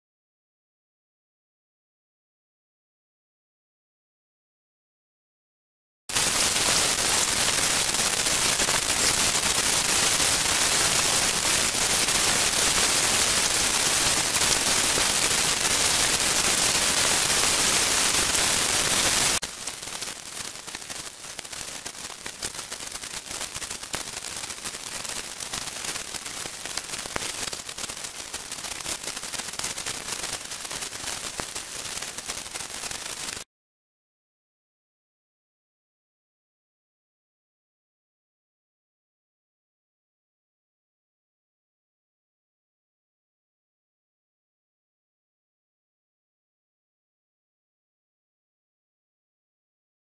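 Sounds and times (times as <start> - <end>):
static hiss with crackle: 6.1 - 33.5.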